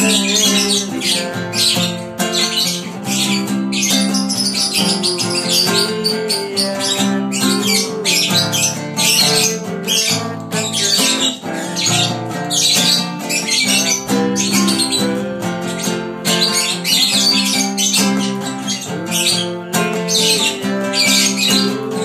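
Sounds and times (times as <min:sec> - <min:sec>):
acoustic guitar strumming: 0:00.0 - 0:22.0
bird chirping and squawking: 0:00.0 - 0:22.0.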